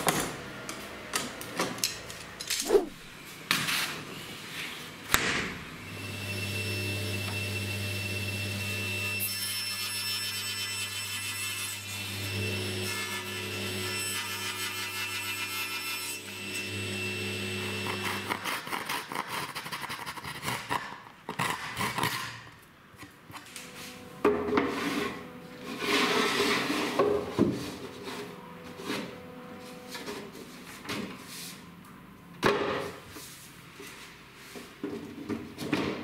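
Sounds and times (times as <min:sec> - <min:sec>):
table saw motor running: 0:16.2 - 0:18.3.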